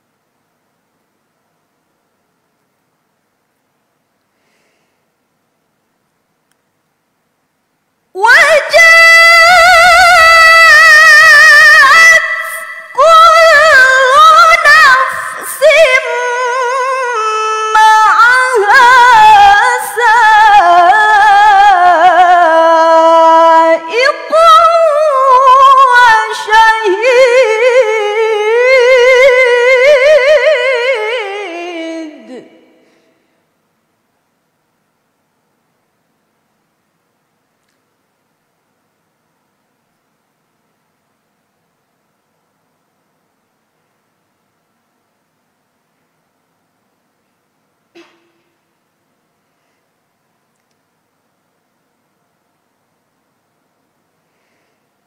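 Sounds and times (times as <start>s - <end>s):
woman reciting melodically: 8.2s - 33.0s.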